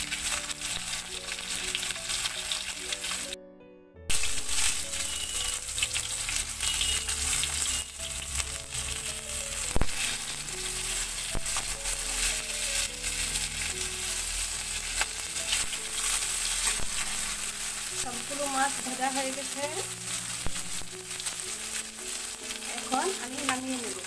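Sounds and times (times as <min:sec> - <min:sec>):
fish sizzling in hot oil: 0:00.0 - 0:03.3, 0:04.1 - 0:24.0
metal spatula scraping pan: 0:09.8 - 0:12.9.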